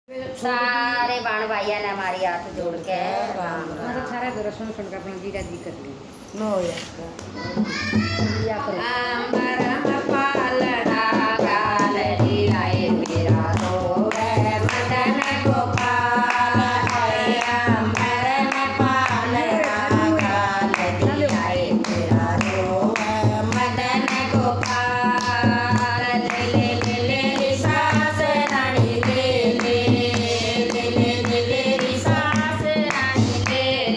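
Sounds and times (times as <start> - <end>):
hand drum rhythm: 7.4 - 33.9
women singing together: 8.4 - 33.9
hand clapping: 12.9 - 33.7.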